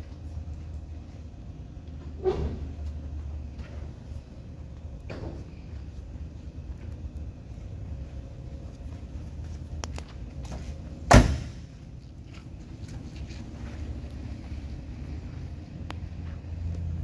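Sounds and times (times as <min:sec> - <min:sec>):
car door shutting thump: 0:11.1 - 0:11.7.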